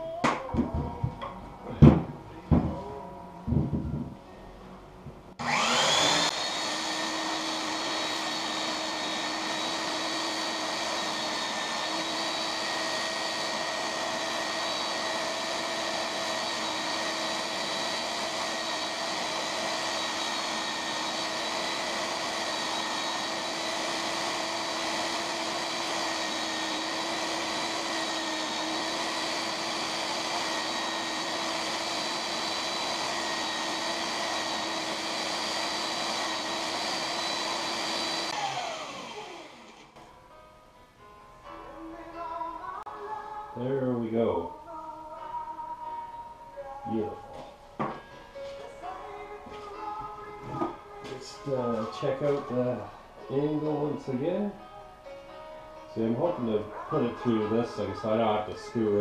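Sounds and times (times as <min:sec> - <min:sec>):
electric belt sander motor whining: 0:05.4 - 0:40.0.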